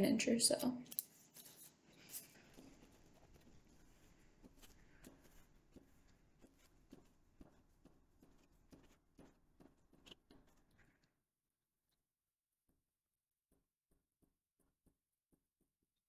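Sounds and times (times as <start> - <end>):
glue stick rubbing on paper: 0.9 - 11.1.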